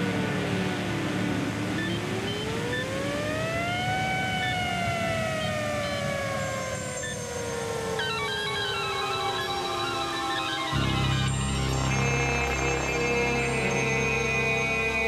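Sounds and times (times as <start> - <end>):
siren-like whine: 1.7 - 12.4.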